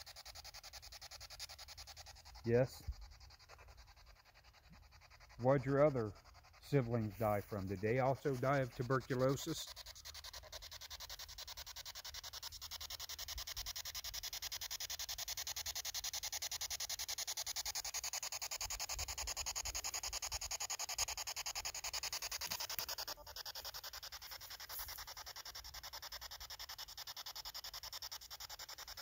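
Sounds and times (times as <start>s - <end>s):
chopping radio static hiss: 2.5s - 2.8s, 6.6s - 9.7s.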